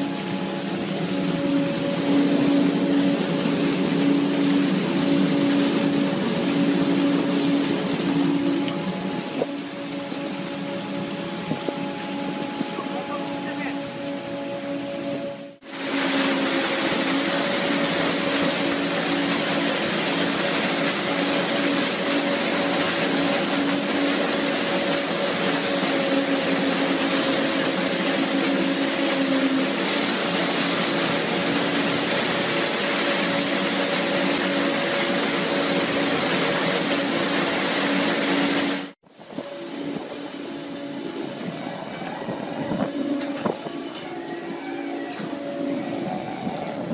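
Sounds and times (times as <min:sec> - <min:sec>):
low machinery hum: 0:00.0 - 0:46.9
water and fish pouring from pipe: 0:15.6 - 0:39.0.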